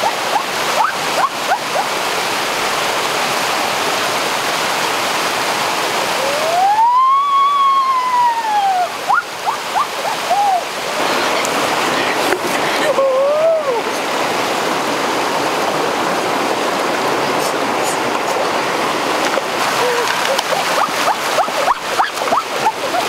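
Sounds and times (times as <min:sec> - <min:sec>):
water rushing over rocks: 0:00.0 - 0:23.0
person exclaiming in astonishment: 0:12.9 - 0:13.8.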